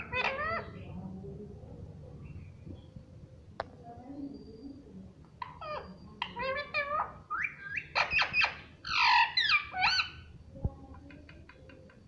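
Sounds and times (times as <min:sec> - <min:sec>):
parakeet squawking and chattering: 0:00.0 - 0:00.8, 0:05.4 - 0:10.3.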